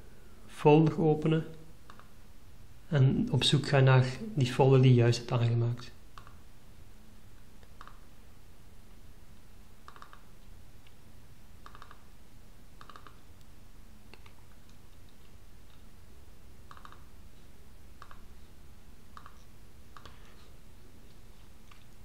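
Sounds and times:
faint low hum: 0.0s - 22.0s
computer mouse double-clicks: 1.9s - 2.1s, 7.6s - 8.0s, 9.8s - 10.3s, 11.6s - 12.0s, 12.8s - 13.2s, 16.7s - 17.1s, 18.0s - 18.2s, 19.1s - 19.4s.

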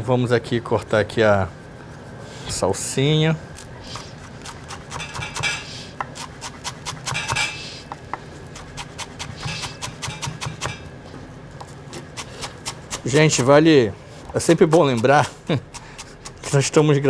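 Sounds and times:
knife scraping board: 3.8s - 10.8s, 11.9s - 13.6s
knife chopping on wooden board: 4.3s - 10.8s, 11.6s - 13.6s.

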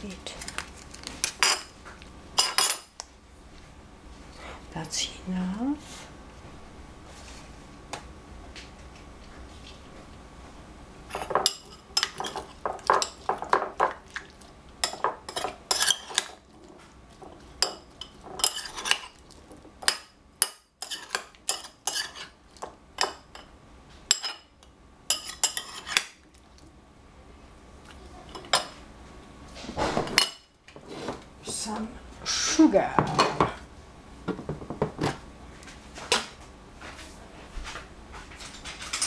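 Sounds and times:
metal spoons clinking against bowl: 24.1s - 24.5s.

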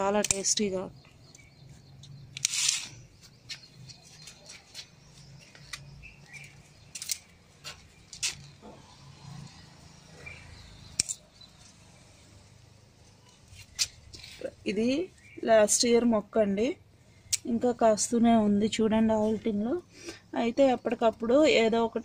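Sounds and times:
pruning shears snipping: 0.0s - 0.7s, 2.1s - 3.7s
plants rustling: 1.6s - 9.2s, 13.0s - 15.0s.

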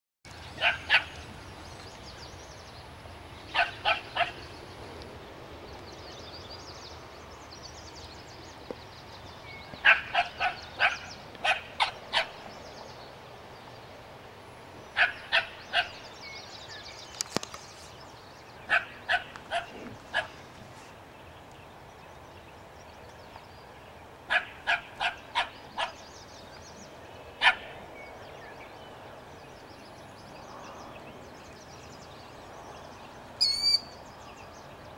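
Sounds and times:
small dog barking: 0.6s - 1.2s, 3.5s - 4.4s, 9.8s - 12.4s, 15.0s - 16.0s, 18.7s - 20.4s, 24.3s - 26.0s, 27.4s - 27.7s.

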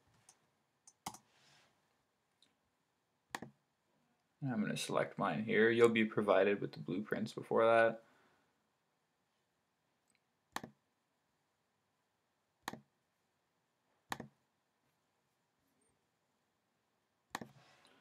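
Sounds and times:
computer mouse clicks: 0.2s - 1.2s, 3.3s - 3.6s, 10.1s - 10.8s, 12.6s - 12.9s, 14.1s - 14.4s, 17.3s - 17.6s.

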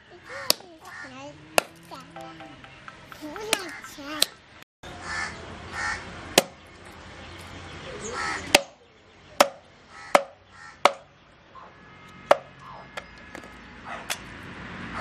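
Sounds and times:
crows cawing: 0.3s - 1.2s, 3.6s - 4.0s, 5.0s - 6.0s, 8.0s - 8.5s, 9.9s - 11.7s.

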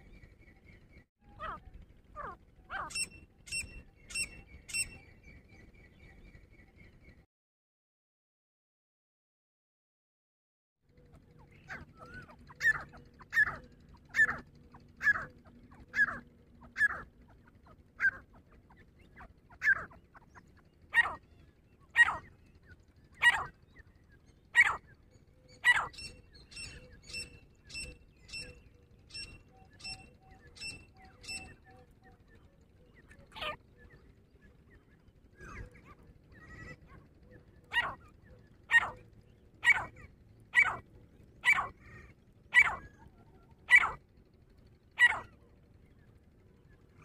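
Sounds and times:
francolin loud sharp calls: 2.2s - 5.1s, 11.4s - 23.8s, 24.5s - 31.8s, 35.4s - 40.8s, 41.4s - 44.1s, 44.9s - 45.4s.

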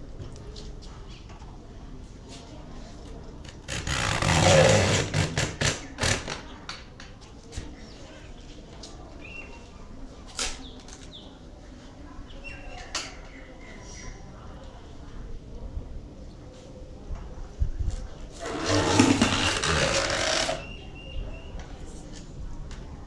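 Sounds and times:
blade cutting coconut husk: 3.7s - 6.4s, 18.4s - 20.7s.

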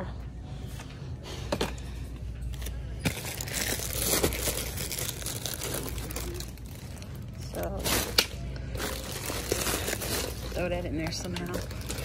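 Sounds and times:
plastic wrapper crinkling: 3.2s - 12.0s.

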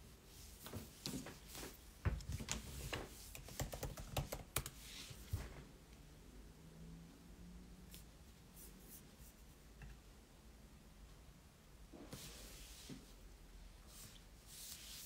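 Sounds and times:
keyboard typing: 3.3s - 4.8s.

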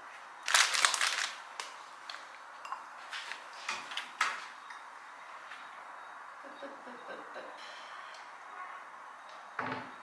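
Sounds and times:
plastic packaging crinkling: 0.4s - 2.3s.

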